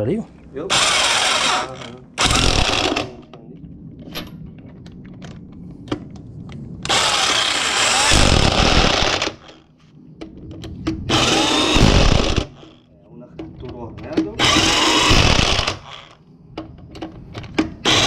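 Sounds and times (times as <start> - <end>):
power tool running in bursts: 0.7 - 3.2, 6.9 - 9.6, 11.1 - 12.8, 14.4 - 16.2
clicks and knocks of parts: 13.4 - 18.0.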